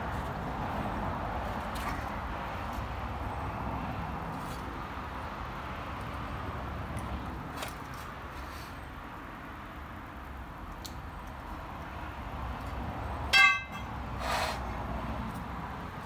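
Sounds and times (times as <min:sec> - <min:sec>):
outdoor background noise: 0:00.0 - 0:16.0.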